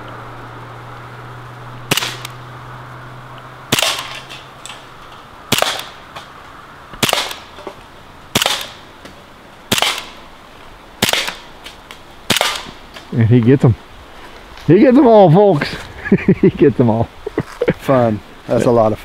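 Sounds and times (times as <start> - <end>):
air pistol shots: 1.9 - 2.3, 3.7 - 4.2, 5.5 - 6.0, 7.0 - 7.5, 8.3 - 8.8, 9.7 - 10.2, 11.0 - 11.4, 12.3 - 12.8.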